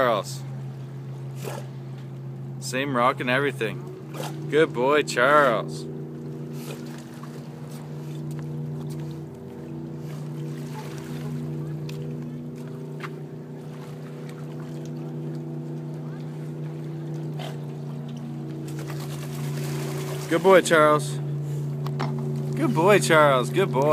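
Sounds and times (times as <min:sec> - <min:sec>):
motor humming: 0:00.3 - 0:23.9
small splashes: 0:05.5 - 0:23.9.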